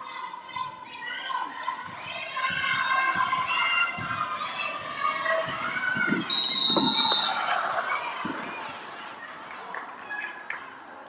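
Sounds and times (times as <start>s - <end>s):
referee's whistle blast: 6.1s - 7.4s.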